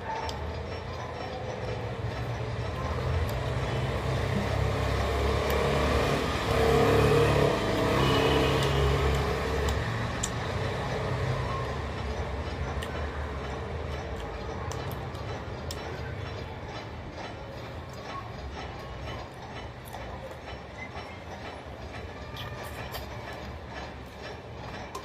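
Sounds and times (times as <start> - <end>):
vehicle passing by: 3.9 - 11.4.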